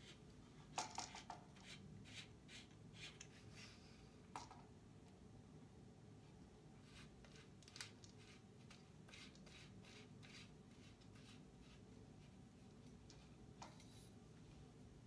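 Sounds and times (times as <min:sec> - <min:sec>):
faint scrapes and light clicks: 0:12.2 - 0:14.2.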